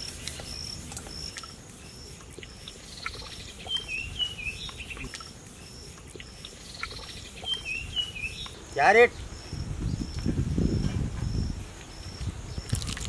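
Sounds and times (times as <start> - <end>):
bird calling: 0.0 - 9.6
insect chirping: 0.0 - 13.0.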